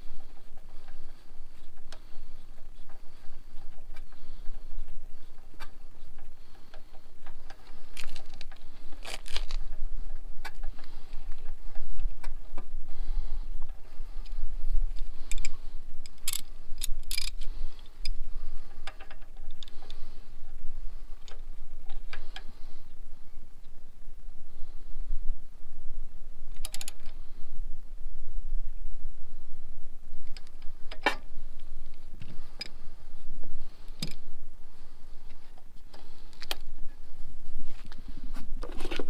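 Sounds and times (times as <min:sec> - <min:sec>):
hand tools and metal parts clinking: 0:00.0 - 0:12.7, 0:13.6 - 0:20.1, 0:26.5 - 0:27.2
low rumble: 0:00.0 - 0:39.0.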